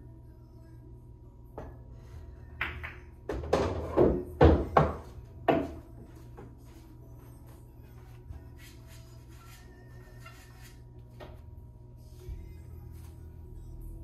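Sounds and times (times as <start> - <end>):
pool balls clacking: 2.6 - 5.9.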